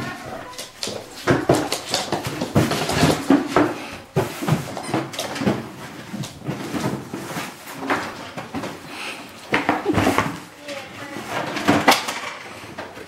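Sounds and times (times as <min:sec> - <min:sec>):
cardboard box scraping on wooden floor: 0:04.2 - 0:08.0.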